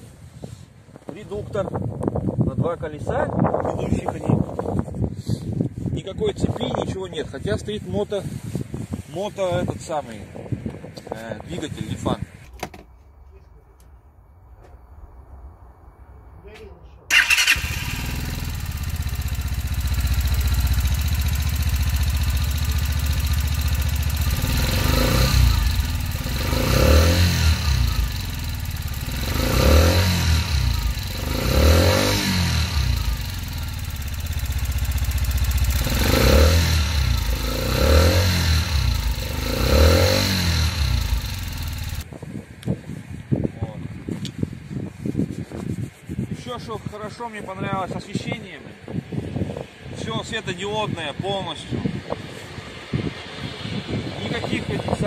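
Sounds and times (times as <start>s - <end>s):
motorcycle engine idling and revving: 17.1s - 42.1s.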